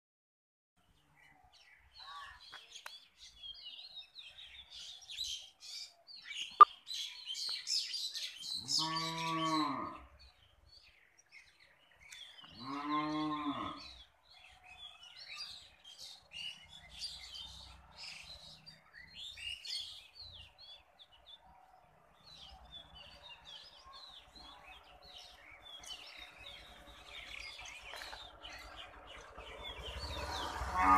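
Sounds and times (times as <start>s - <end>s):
small birds chirping: 0.8s - 30.9s
cow mooing: 8.6s - 10.1s, 12.6s - 13.9s, 30.6s - 30.9s.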